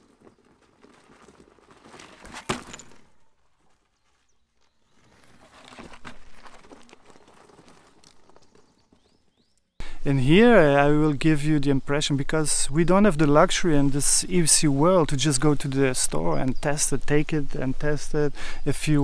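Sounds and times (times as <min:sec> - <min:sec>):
tyre crunching on gravel: 0:00.0 - 0:09.6.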